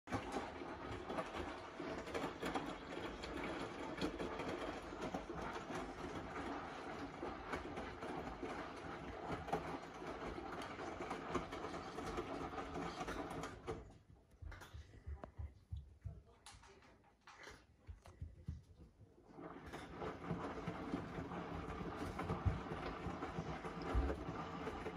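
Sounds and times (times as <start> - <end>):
washing machine drum tumbling laundry: 0.0 - 14.0, 19.2 - 24.9.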